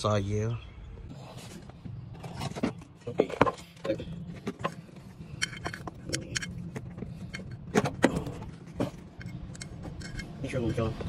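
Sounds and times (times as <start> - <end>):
steady low hum: 0.0 - 11.0
metal tools clinking and scraping: 2.1 - 11.0.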